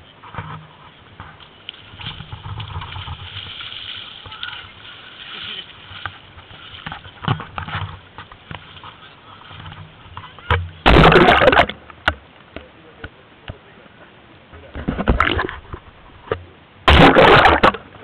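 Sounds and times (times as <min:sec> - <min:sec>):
water splashing and sloshing: 0:00.0 - 0:12.3, 0:14.7 - 0:18.0
loud splashes: 0:10.8 - 0:11.8, 0:16.9 - 0:18.0.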